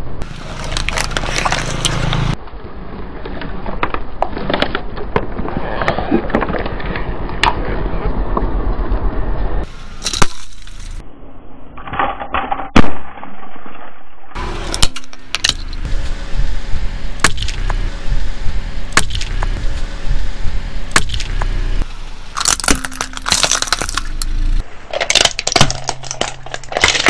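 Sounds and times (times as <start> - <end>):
tyre crushing objects on asphalt: 0.2 - 2.4, 20.9 - 21.6, 22.3 - 27.0
sharp cracks: 17.2 - 17.8, 18.9 - 19.8, 20.9 - 27.0.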